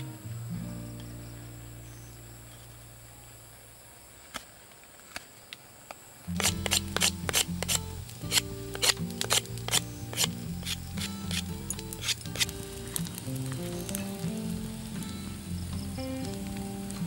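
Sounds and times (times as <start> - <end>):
music with clicking beat: 6.3 - 17.0.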